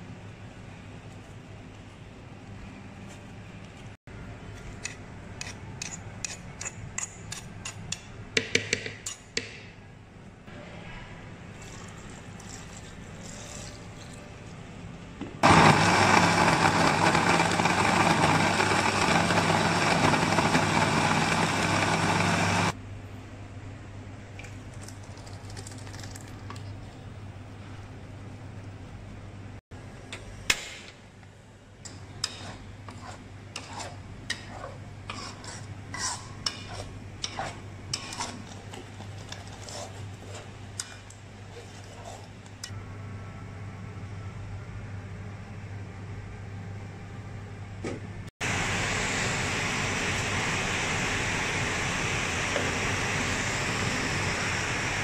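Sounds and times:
electric blender running: 0:15.4 - 0:22.8, 0:48.4 - 0:55.0.

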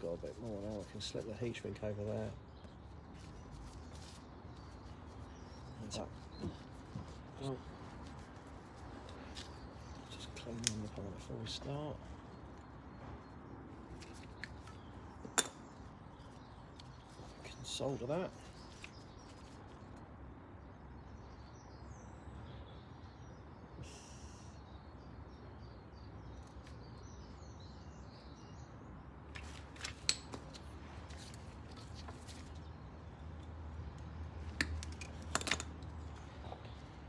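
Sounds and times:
faint bird chirps: 0:21.0 - 0:28.9.

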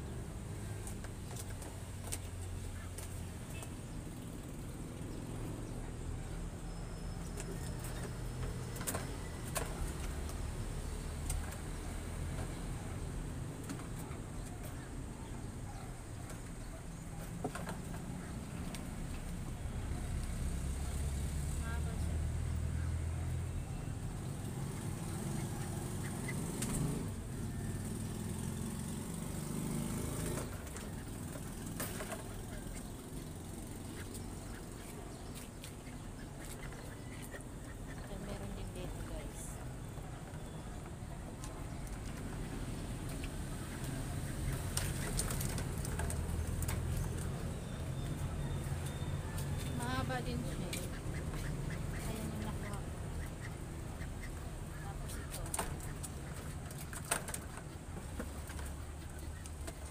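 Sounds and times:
distant road traffic rumble: 0:00.0 - 0:59.9
soft rustling of vines: 0:07.4 - 0:53.5.

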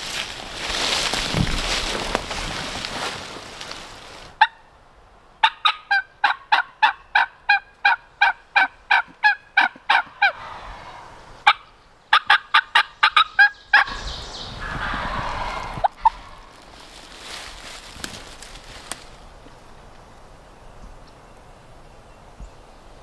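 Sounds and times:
turkey yelping: 0:05.4 - 0:16.6.

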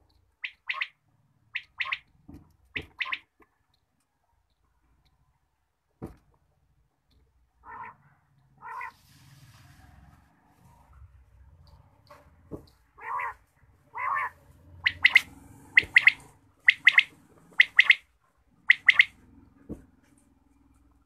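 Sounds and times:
quail calling: 0:00.4 - 0:03.4, 0:07.6 - 0:08.0, 0:08.6 - 0:09.0, 0:13.0 - 0:19.2.

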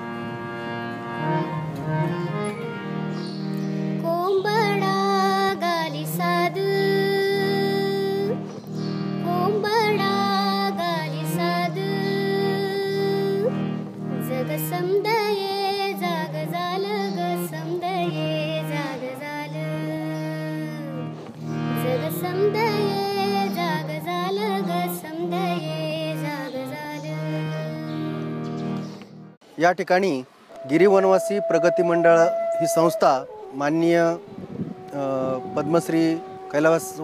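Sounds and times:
harmonium chords: 0:00.0 - 0:37.0
person singing: 0:04.0 - 0:08.4, 0:09.2 - 0:21.1, 0:21.8 - 0:28.2.

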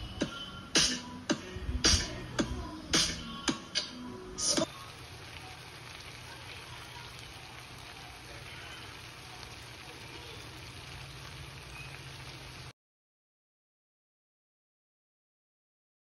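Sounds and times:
food sizzling in frying pan: 0:04.6 - 0:12.7.

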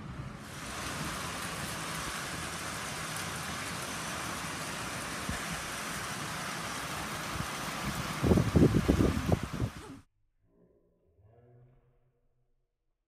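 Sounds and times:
heavy rain hissing: 0:00.0 - 0:10.0.

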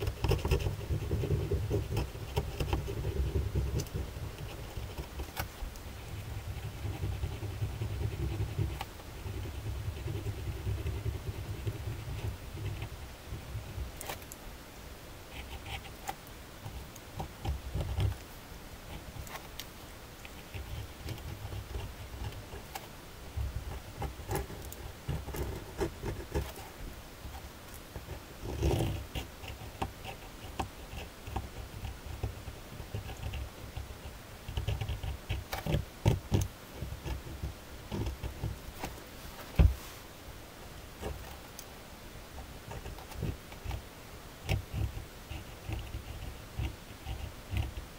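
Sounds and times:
pen scratching on paper: 0:00.0 - 0:13.4, 0:15.3 - 0:16.1, 0:28.0 - 0:38.9, 0:44.4 - 0:47.8.

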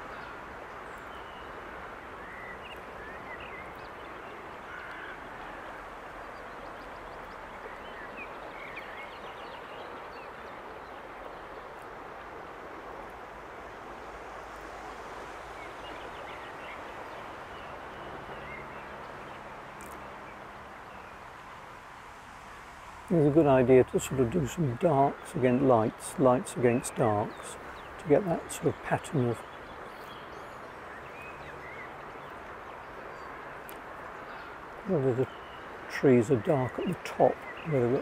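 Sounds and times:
birds chirping: 0:00.0 - 0:11.9, 0:23.1 - 0:38.0
steady outdoor hiss: 0:00.0 - 0:38.0.

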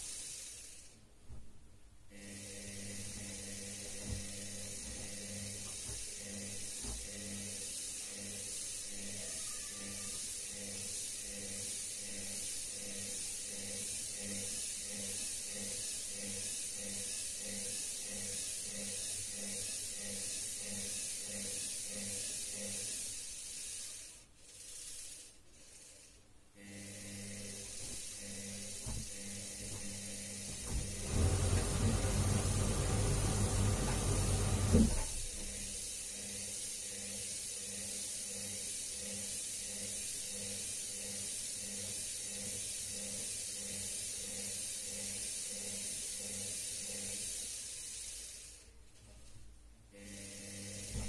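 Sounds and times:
steady hiss: 0:00.0 - 0:01.1, 0:02.2 - 0:26.3, 0:27.4 - 0:49.4
washing machine motor hum: 0:26.6 - 0:37.7, 0:50.0 - 0:51.0.

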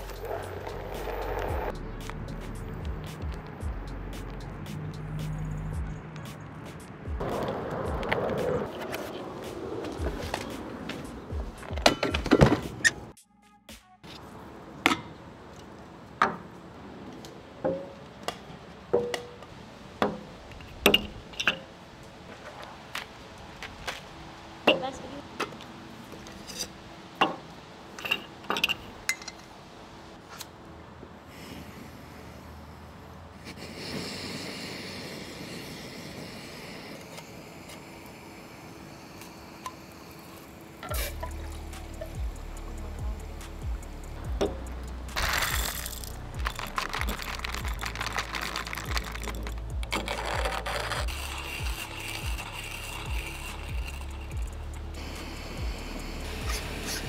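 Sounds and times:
music with deep bass beat: 0:00.0 - 0:08.7, 0:09.5 - 0:13.9, 0:40.9 - 0:57.0
steady hiss: 0:31.2 - 0:50.4, 0:51.0 - 0:57.0.

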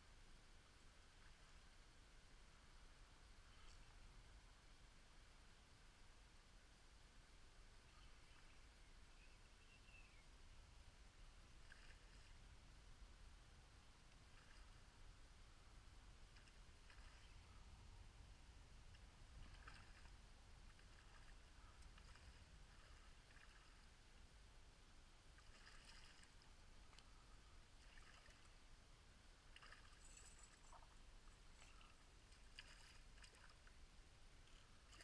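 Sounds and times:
shallow river water: 0:00.0 - 0:35.0
wind rumble on microphone: 0:16.0 - 0:23.8.

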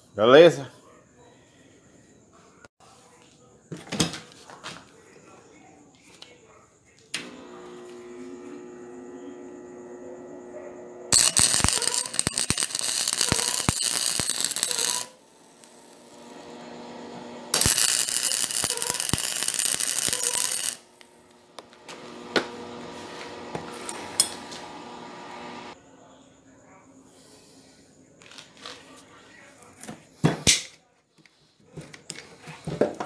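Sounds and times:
steady hum: 0:07.4 - 0:25.8
arc welding crackling: 0:11.1 - 0:24.4
spatter pops: 0:11.2 - 0:15.8, 0:17.5 - 0:21.8.

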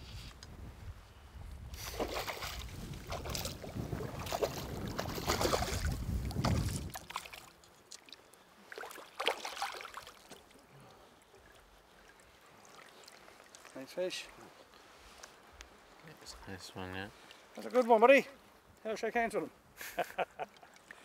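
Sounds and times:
fish thrashing and splashing: 0:01.8 - 0:08.1, 0:08.7 - 0:10.5.

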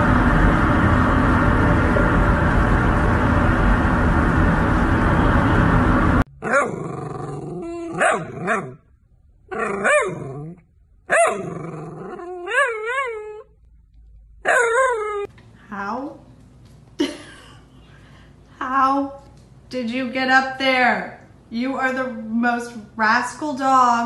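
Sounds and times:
loud rushing noise: 0:00.0 - 0:06.2
dog whining and yowling: 0:06.4 - 0:08.8, 0:09.5 - 0:13.6, 0:14.4 - 0:15.3.

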